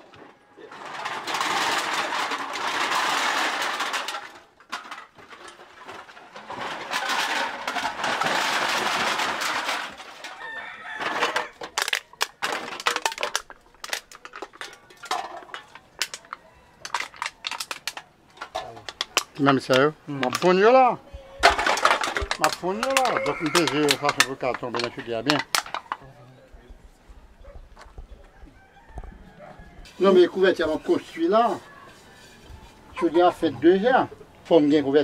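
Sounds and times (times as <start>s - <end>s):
aluminium cans clattering onto pile: 0.0s - 20.8s, 21.4s - 26.0s
single cans clinking: 0.9s - 20.7s, 21.4s - 26.0s.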